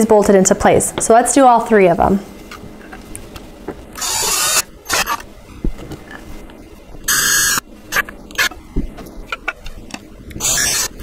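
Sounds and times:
cordless drill driving bolts: 4.0 - 5.3, 7.0 - 8.5, 10.3 - 11.0.

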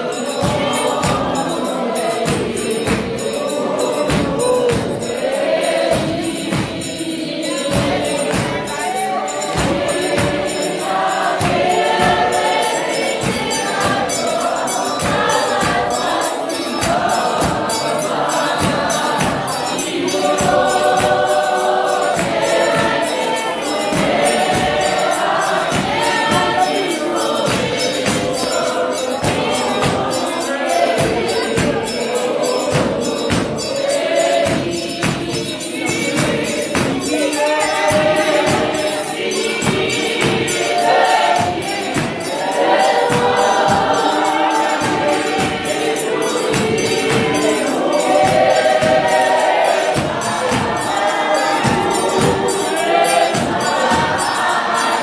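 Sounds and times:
congregation singing a hymn: 0.0 - 55.0
steady percussive beat: 0.0 - 55.0.

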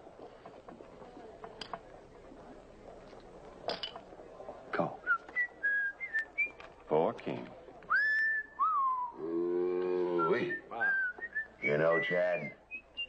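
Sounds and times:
man whistling: 7.9 - 9.2, 10.1 - 13.0.

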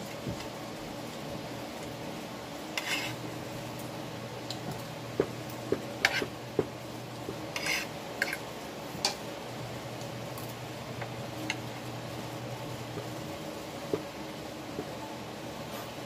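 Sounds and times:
spoon scraping plate: 2.7 - 3.2, 6.0 - 6.3, 7.5 - 8.4.

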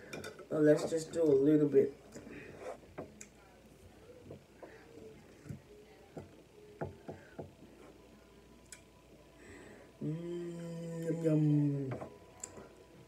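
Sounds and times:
woman humming: 10.0 - 12.6.

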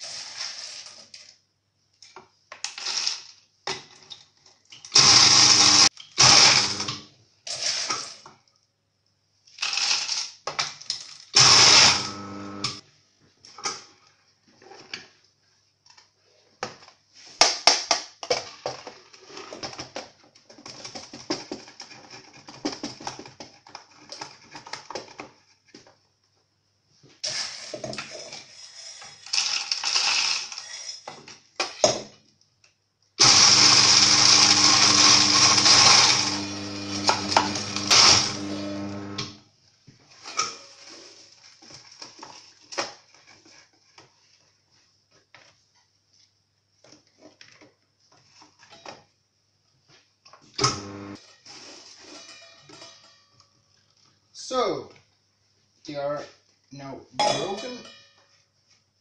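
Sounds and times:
electric grinder running: 5.0 - 7.0, 11.4 - 12.8, 33.2 - 39.4, 50.6 - 51.2
beans crunching in grinder: 9.6 - 10.4, 11.0 - 12.7, 28.6 - 30.8, 33.2 - 39.3.

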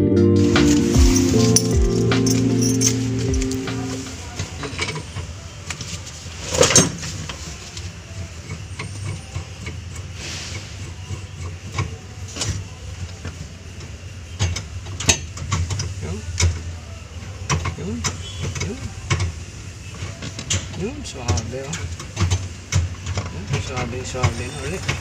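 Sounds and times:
wrench and parts clicking: 1.2 - 3.7.

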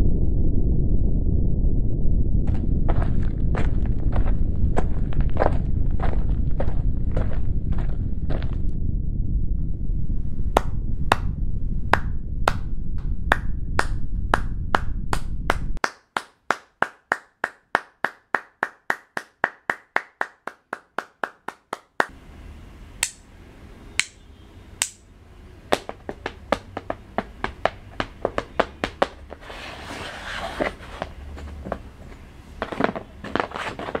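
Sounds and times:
low rumble: 0.0 - 15.8
sharp percussive clicks: 23.0 - 23.3, 24.0 - 24.2, 24.8 - 25.1.

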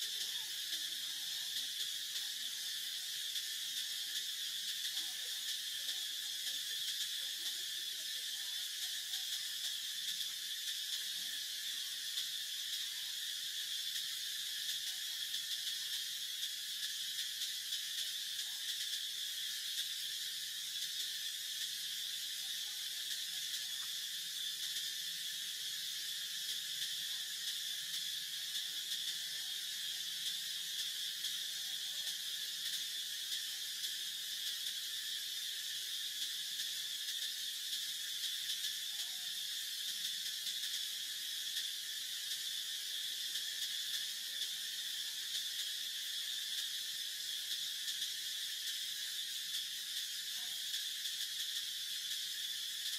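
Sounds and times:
insect chorus drone: 0.0 - 52.9.

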